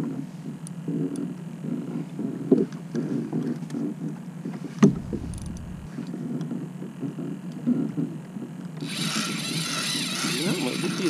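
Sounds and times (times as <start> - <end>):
wind and water rumble: 4.7 - 6.3
sharp knock: 4.8 - 6.0.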